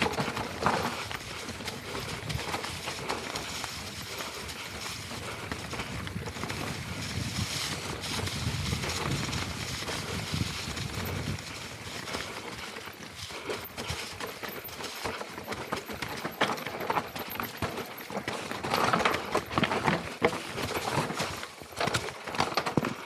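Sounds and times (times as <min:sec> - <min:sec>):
bike clicking and rattling: 0:00.0 - 0:23.0
tyres crunching over stones and leaves: 0:00.0 - 0:23.0
wind rushing on microphone: 0:05.2 - 0:11.9.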